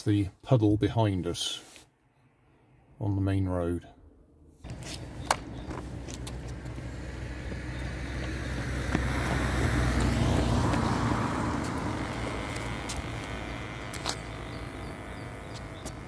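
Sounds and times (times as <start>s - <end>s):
car passing on wet road: 5.8s - 14.2s.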